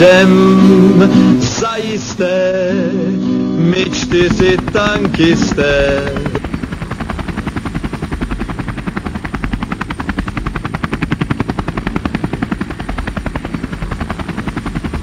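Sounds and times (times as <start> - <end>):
machine rapid chopping pulse: 4.0 - 15.0.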